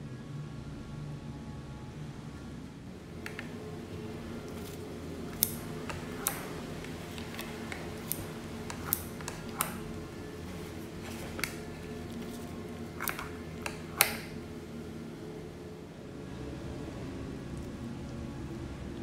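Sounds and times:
scissors snipping omelette: 0:04.5 - 0:10.0.

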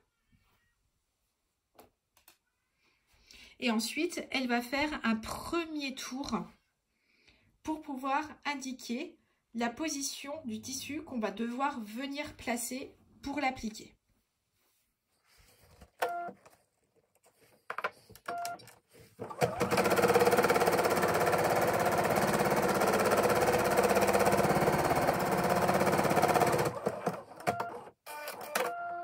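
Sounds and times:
embroidery machine stitching: 0:19.2 - 0:28.6.

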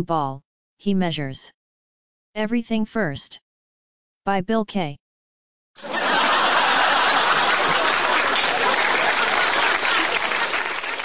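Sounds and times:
crowd applause: 0:05.8 - 0:11.0.

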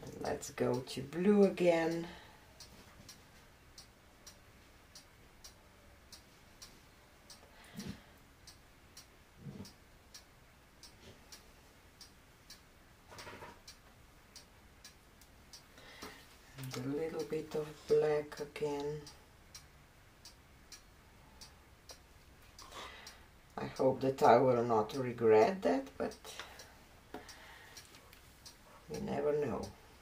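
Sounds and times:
faint even ticking: 0:00.0 - 0:30.0.

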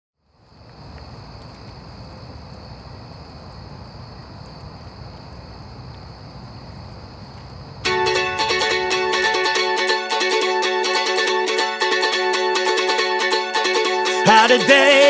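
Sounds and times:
faint ticks: 0:00.2 - 0:03.3
high-pitched tone: 0:07.9 - 0:15.0.

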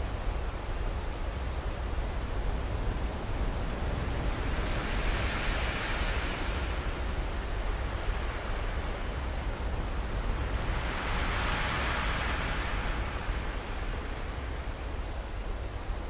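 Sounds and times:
wind and drone rotor wash: 0:03.7 - 0:15.8.

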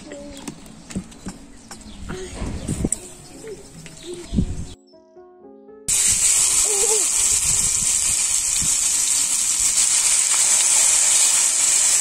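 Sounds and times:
meat sizzling in hot oil: 0:05.9 - 0:12.0.

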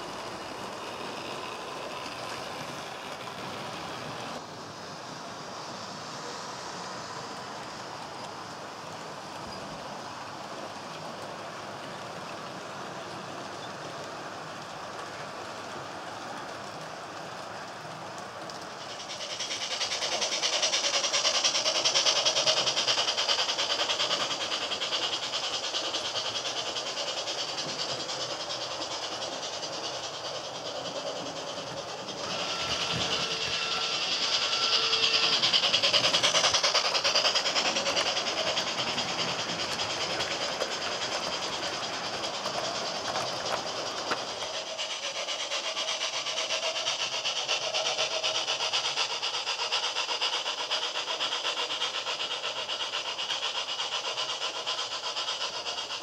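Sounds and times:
model trains rolling and whirring: 0:00.0 - 0:56.0
fine rapid clicking: 0:13.4 - 0:56.0.

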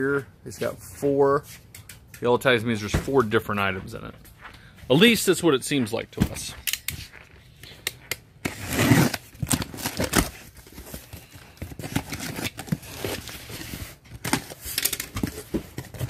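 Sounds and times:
box cutter slicing tape: 0:08.4 - 0:10.4
cardboard flaps scraping and rustling: 0:08.5 - 0:16.0.

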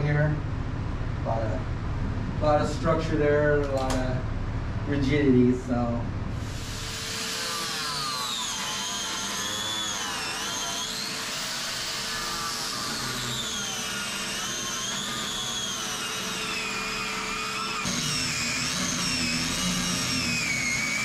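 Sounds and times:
vacuum humming: 0:06.3 - 0:21.0
angle grinder whining: 0:06.4 - 0:21.0.

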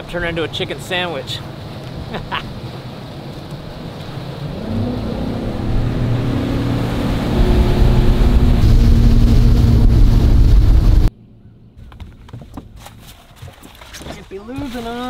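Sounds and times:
outboard motor throttling up: 0:04.3 - 0:11.1.

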